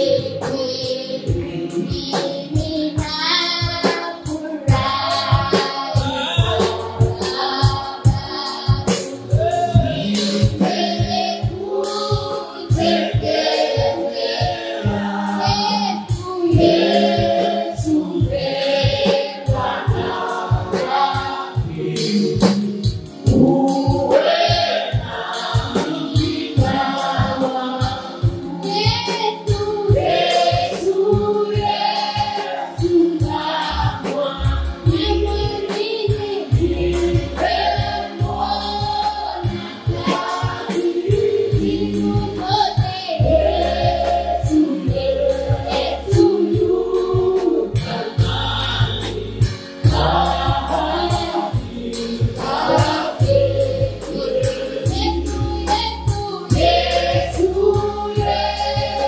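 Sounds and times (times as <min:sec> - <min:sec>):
woman singing lead: 0:00.0 - 0:13.4, 0:14.4 - 0:59.0
drum kit beat: 0:00.0 - 0:59.0
voices singing together: 0:00.0 - 0:59.0
deep bass notes: 0:36.5 - 0:40.0, 0:43.2 - 0:59.0.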